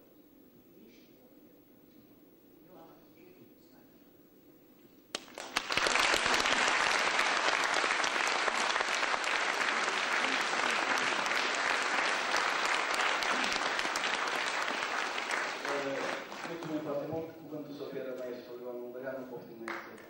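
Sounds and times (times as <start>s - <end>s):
audience applauding: 5.1s - 17.3s.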